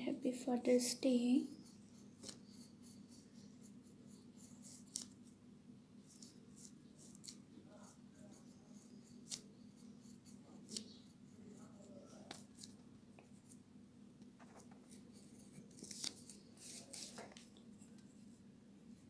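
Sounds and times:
scissors cutting paper: 0:04.6 - 0:05.2, 0:06.1 - 0:11.0.

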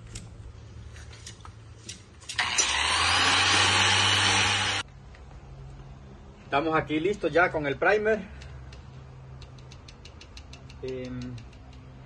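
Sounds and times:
electric sander running: 0:02.4 - 0:04.8.

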